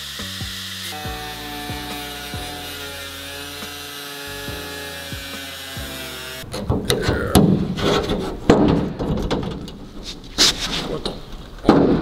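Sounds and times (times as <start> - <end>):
background music: 0.0 - 7.3.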